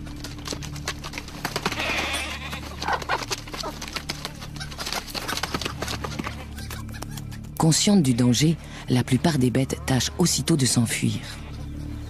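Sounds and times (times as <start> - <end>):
scrabbling and rustling: 0.0 - 7.6
chickens squawking: 1.6 - 7.6.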